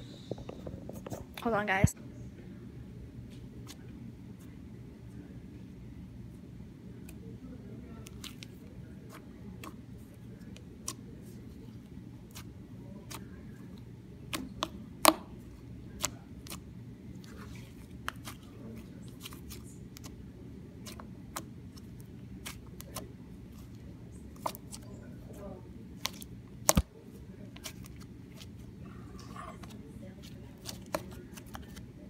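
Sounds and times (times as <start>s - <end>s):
low steady hum: 0.0s - 32.0s
slime squishing: 7.9s - 32.0s.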